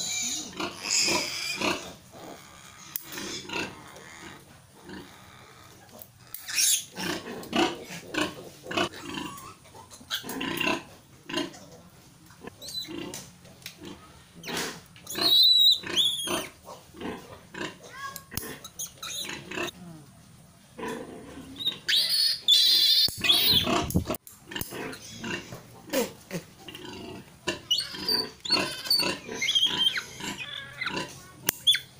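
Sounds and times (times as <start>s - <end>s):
piglet squealing: 0.0s - 7.2s, 14.4s - 16.6s, 17.8s - 19.7s, 21.4s - 24.1s, 27.5s - 31.9s
piglet grunting: 0.0s - 11.6s, 20.8s - 31.8s.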